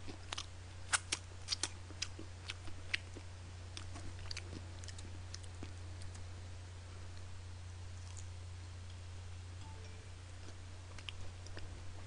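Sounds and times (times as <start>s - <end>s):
chewing and finger-licking smacks: 0.0s - 6.3s, 8.0s - 8.3s
steady low hum: 0.0s - 12.0s.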